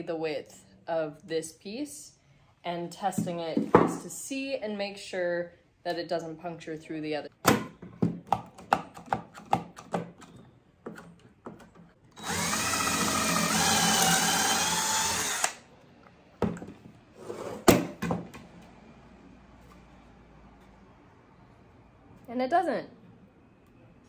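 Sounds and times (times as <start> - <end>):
power drill drilling wood: 12.2 - 15.6.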